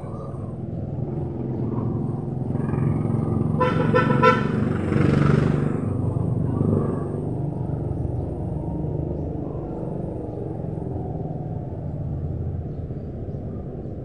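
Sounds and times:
street traffic: 0.0 - 14.0
vehicle rushing by: 0.6 - 12.6
vehicle horn toot: 3.6 - 4.6.

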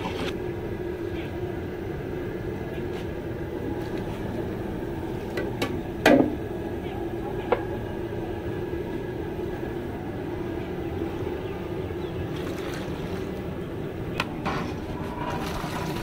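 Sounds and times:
gas burner roaring: 0.0 - 16.0
thick gravy pouring: 14.8 - 16.0.

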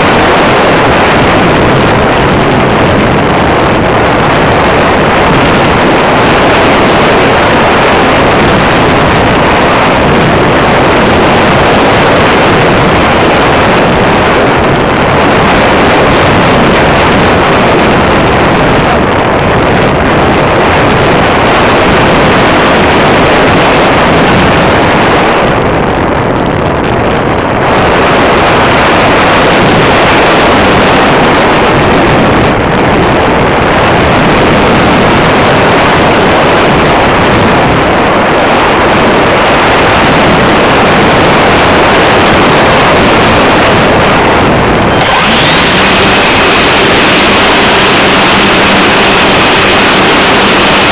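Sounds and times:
rushing airflow: 0.0 - 50.9
model airplane motor: 43.4 - 50.9.

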